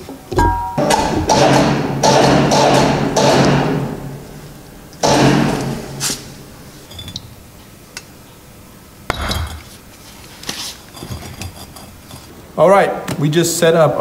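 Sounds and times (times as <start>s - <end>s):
metal knocks: 0.3s - 4.0s.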